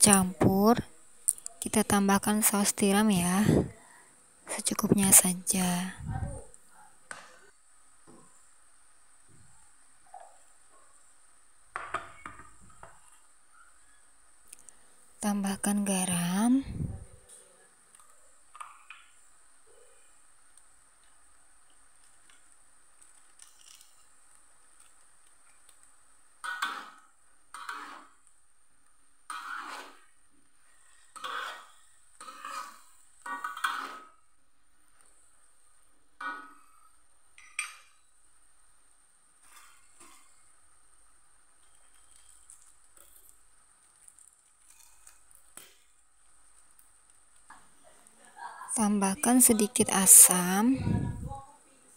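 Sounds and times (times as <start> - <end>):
metal spatula scraping wok: 26.4 - 28.3, 29.3 - 34.2, 36.2 - 36.9.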